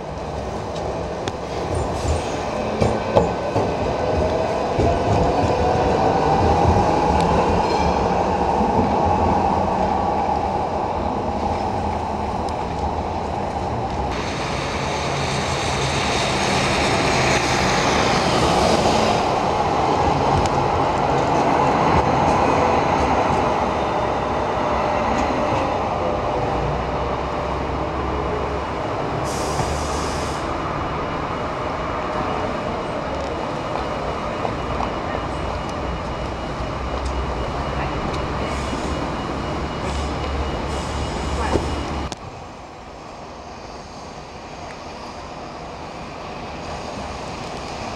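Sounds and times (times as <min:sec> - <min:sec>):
tram traction motors whining: 0:30.5 - 0:42.3.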